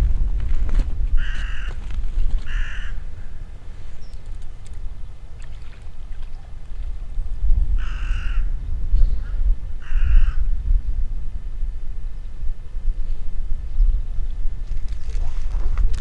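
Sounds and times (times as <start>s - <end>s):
low rumble: 0.0s - 16.0s
crow cawing: 1.2s - 1.8s, 2.4s - 3.4s, 7.8s - 8.5s, 9.2s - 10.4s.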